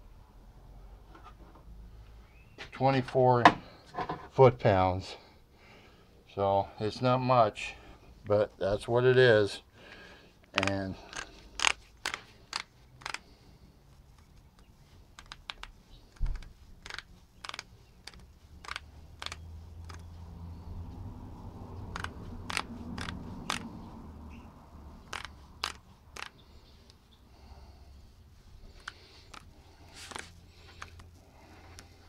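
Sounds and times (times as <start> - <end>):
hand ratchet clicking: 10.5 - 13.2, 14.5 - 20.2, 21.9 - 23.8, 25.0 - 26.4, 28.7 - 31.1.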